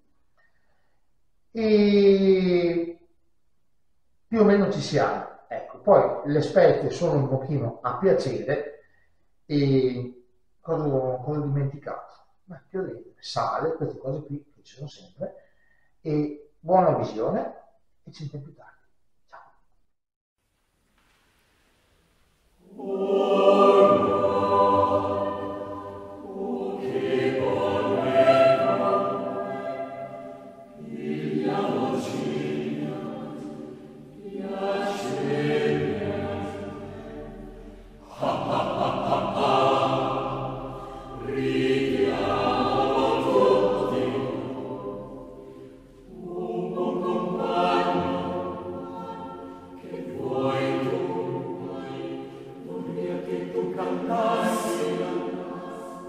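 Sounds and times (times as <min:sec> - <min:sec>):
choir singing slow phrases: 0:22.6 - 0:56.0.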